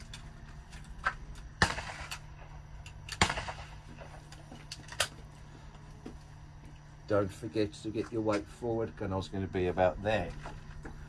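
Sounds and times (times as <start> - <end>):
sharp echoing bangs: 1.5 - 4.2.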